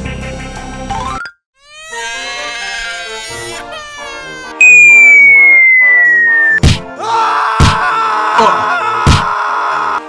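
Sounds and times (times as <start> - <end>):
baby crying: 1.6 - 4.6
rising sound effect: 4.6 - 6.6.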